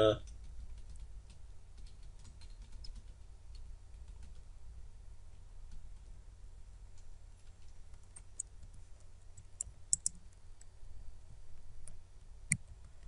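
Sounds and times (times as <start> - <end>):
low steady hum: 0.0 - 13.0
computer keyboard keys clicking: 0.2 - 4.4, 9.5 - 10.2.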